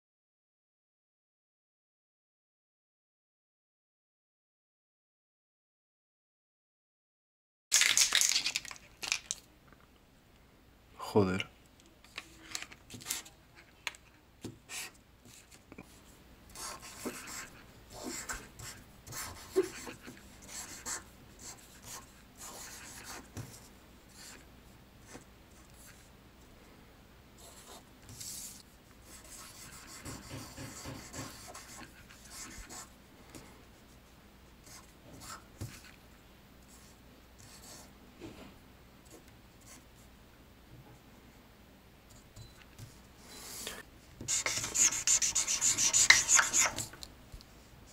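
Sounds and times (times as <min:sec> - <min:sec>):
scratchy writing strokes: 0:14.6 - 0:26.1, 0:27.4 - 0:33.0, 0:42.1 - 0:47.0.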